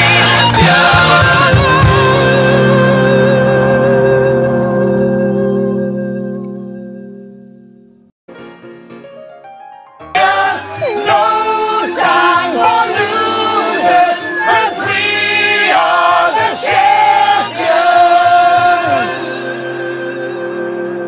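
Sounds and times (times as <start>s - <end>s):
people singing along to pop song: 0.0s - 2.7s, 10.2s - 19.6s
soft music: 0.0s - 21.0s.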